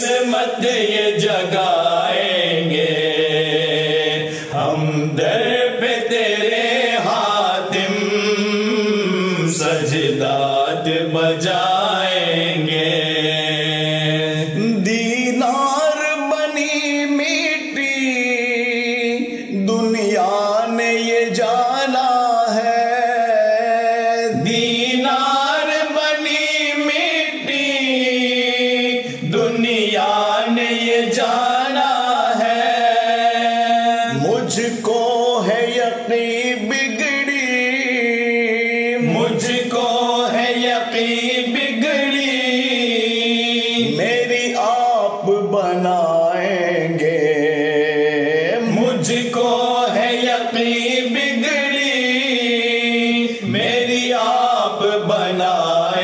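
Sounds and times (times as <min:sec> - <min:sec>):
men chanting unaccompanied: 0:00.0 - 0:56.0.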